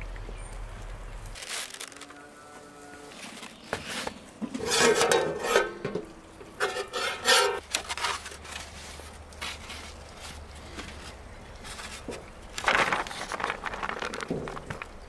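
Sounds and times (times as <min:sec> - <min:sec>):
metal pot lid clattering: 0:04.6 - 0:07.6.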